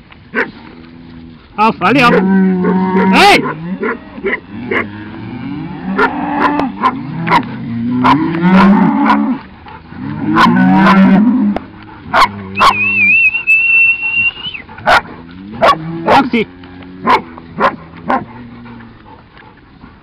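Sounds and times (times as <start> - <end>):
cattle mooing: 0.6 - 19.1
high wavering whistle-like tone: 12.6 - 14.7.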